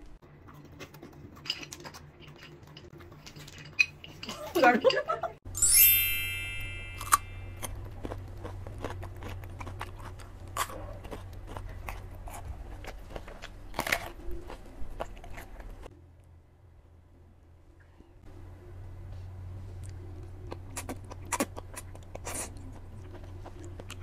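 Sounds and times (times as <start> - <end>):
bright chime: 5.5 - 7.6
crunchy biting and chewing radish: 7.0 - 15.9, 19.8 - 24.0.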